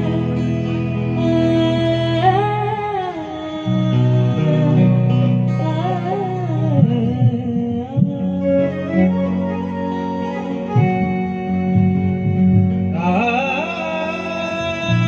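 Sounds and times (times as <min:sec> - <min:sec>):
acoustic guitar: 0:00.0 - 0:15.0
keyboard chords: 0:00.0 - 0:15.0
person singing ornamented vocals: 0:13.0 - 0:15.0.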